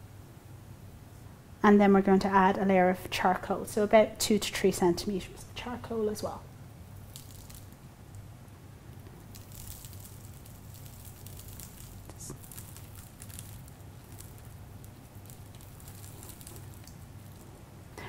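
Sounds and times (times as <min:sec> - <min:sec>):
granules pattering into bottle: 0:09.2 - 0:17.6.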